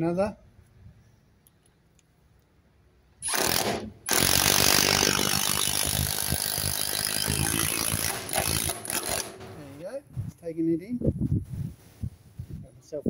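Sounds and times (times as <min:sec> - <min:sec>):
cordless drill motor: 0:03.2 - 0:09.6.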